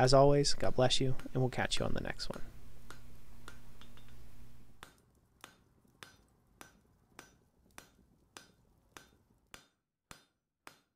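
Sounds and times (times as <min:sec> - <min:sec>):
ringing metal taps: 0:02.3 - 0:04.2.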